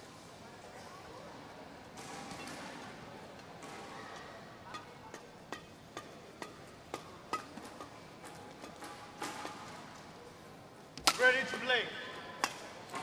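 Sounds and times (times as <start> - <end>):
rackets striking shuttlecocks: 3.5 - 13.0.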